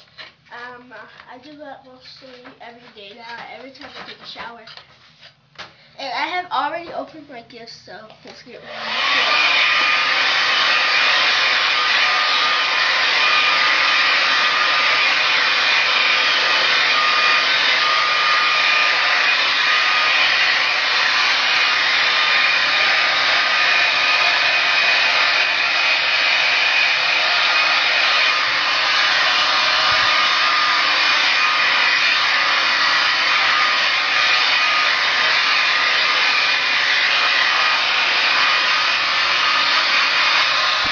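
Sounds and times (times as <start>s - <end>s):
hair dryer blowing: 8.5s - 40.9s.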